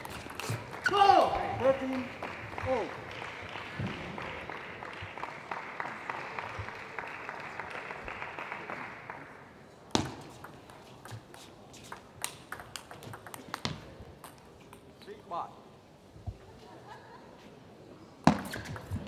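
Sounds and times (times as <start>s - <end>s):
table tennis ball clicks: 10.0s - 14.9s.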